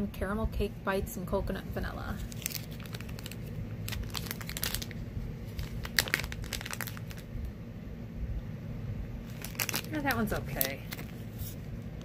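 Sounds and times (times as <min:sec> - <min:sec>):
plastic bag crinkling: 0:02.1 - 0:07.3, 0:09.2 - 0:11.6.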